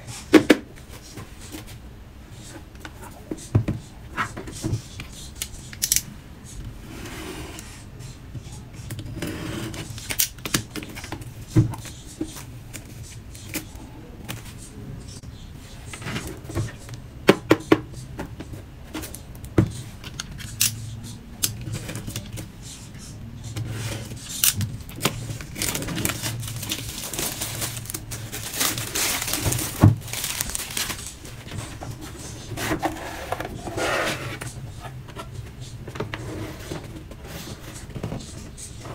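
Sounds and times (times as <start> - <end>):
plastic film crinkling and tearing: 24.4 - 31.4.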